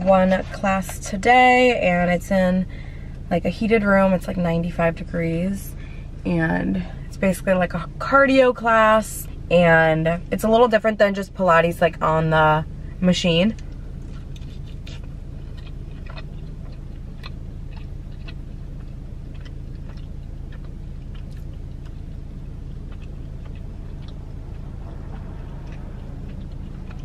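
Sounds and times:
low car interior hum: 0:00.0 - 0:27.0
person chewing food: 0:13.6 - 0:27.0.

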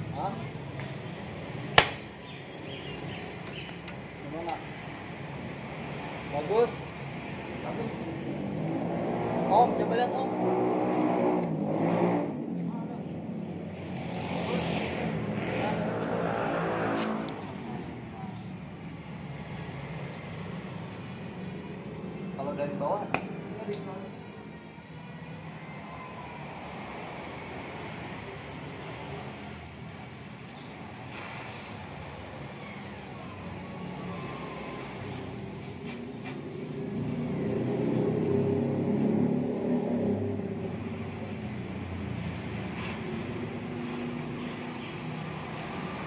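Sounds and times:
car engine revving and idling: 0:05.4 - 0:18.2, 0:31.4 - 0:46.0.

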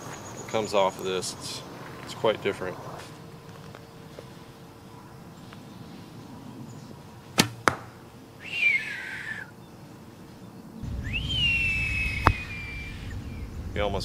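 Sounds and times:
arrow striking bag target: 0:07.4 - 0:08.0
bowstring release pop: 0:07.4 - 0:08.0
short high whine: 0:10.8 - 0:14.0.

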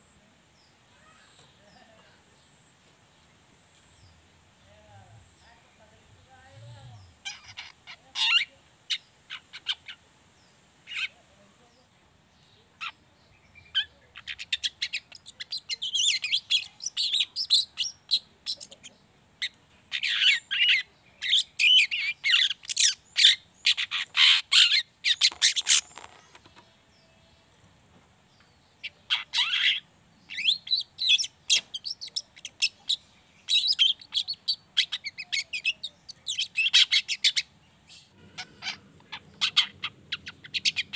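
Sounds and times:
shrike scratchy chattering song: 0:06.9 - 0:10.0, 0:19.4 - 0:26.6, 0:28.8 - 0:40.9.

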